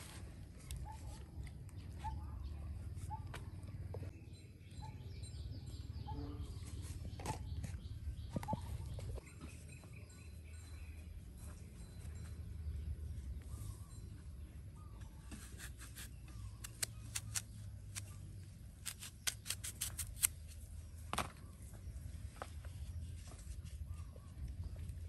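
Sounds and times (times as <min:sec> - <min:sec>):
knife cutting through apple: 0:15.4 - 0:18.1, 0:18.8 - 0:20.4.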